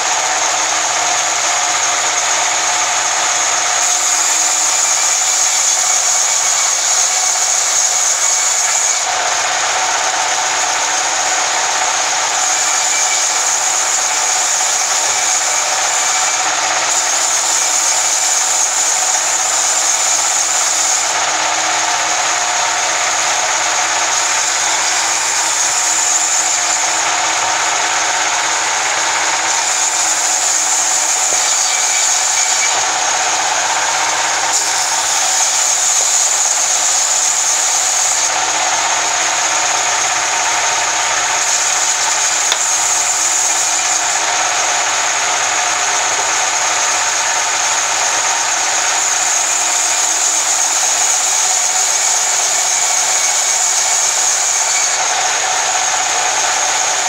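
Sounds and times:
band saw cutting log: 0.0 - 57.0.

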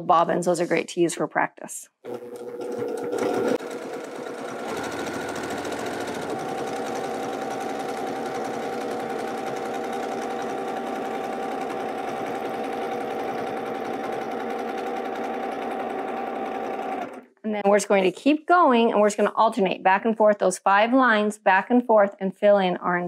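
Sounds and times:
sewing machine stitching rapidly: 2.1 - 17.3.

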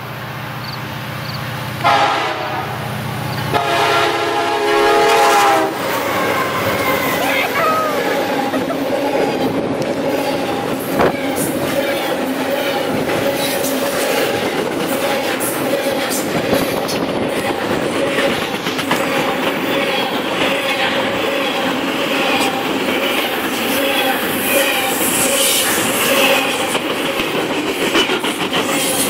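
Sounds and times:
train wheels rumbling on rails: 0.0 - 29.0.

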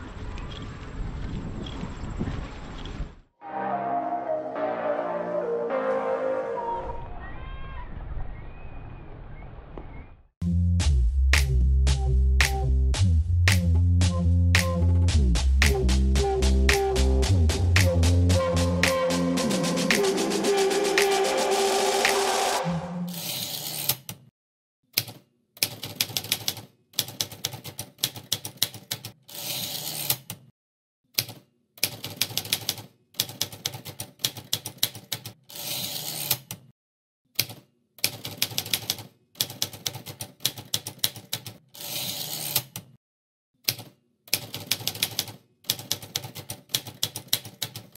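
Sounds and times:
typewriter keys clicking: 25.0 - 29.2, 31.2 - 36.6, 37.4 - 42.9, 43.6 - 48.0.

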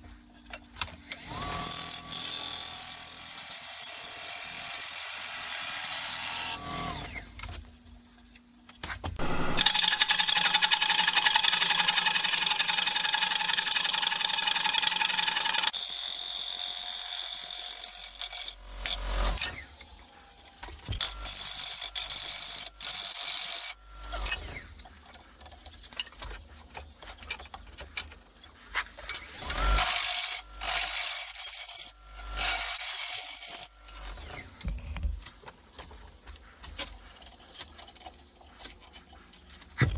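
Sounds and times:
lathe gouge cutting wood: 9.2 - 16.5.

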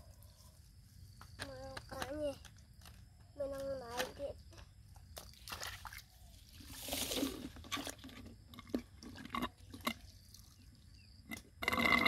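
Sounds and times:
muddy water splashing: 5.2 - 11.0.

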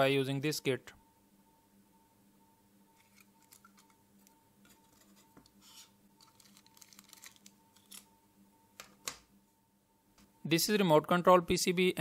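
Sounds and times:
faint steady hum: 0.0 - 12.0
plastic handling clicks and rustles: 6.2 - 8.1.

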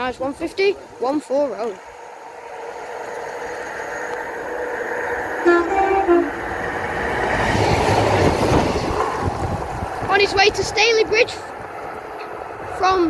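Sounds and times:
diesel train approaching: 0.0 - 13.0
two-tone train horn: 5.4 - 7.0.

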